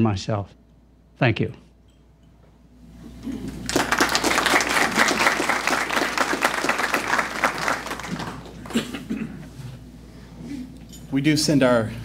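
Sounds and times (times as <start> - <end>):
audience applauding: 3.5 - 8.9.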